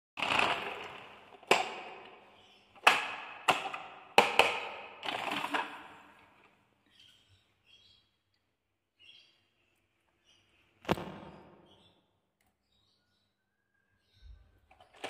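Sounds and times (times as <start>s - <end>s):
plastic toy knocking and clattering: 1.4s - 2.2s, 2.8s - 6.0s, 14.7s - 15.0s.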